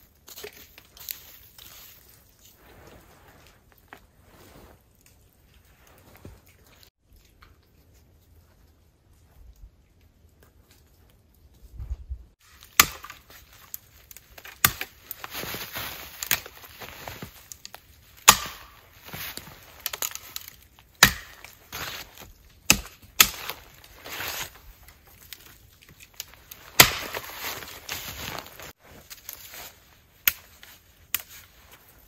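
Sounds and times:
rustling and crunching: 0:00.0 - 0:32.0
axe blows chopping wood: 0:12.6 - 0:13.2, 0:18.2 - 0:18.8, 0:21.0 - 0:22.0, 0:26.8 - 0:27.3.

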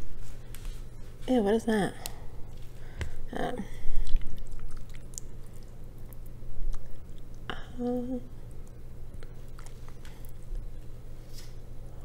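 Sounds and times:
person humming: 0:07.5 - 0:08.4.

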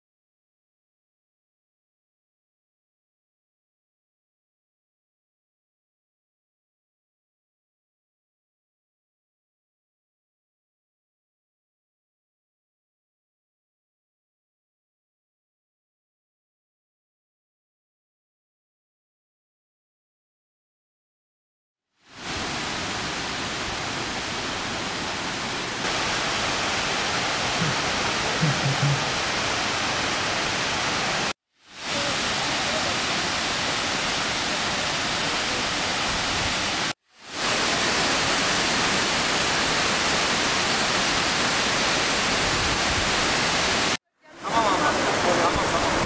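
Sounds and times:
waterfall rushing: 0:22.0 - 0:46.0.

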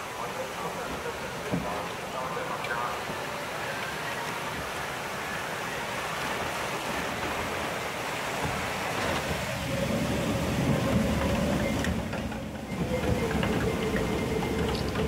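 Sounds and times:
water rushing and churning: 0:00.0 - 0:15.0
lift conveyor mechanical hum: 0:08.4 - 0:15.0.

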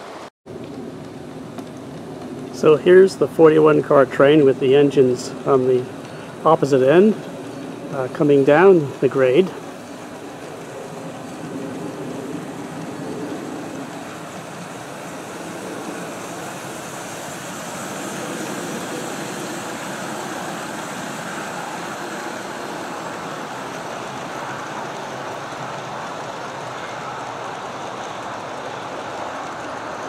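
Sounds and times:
model train rolling past: 0:00.0 - 0:30.0.

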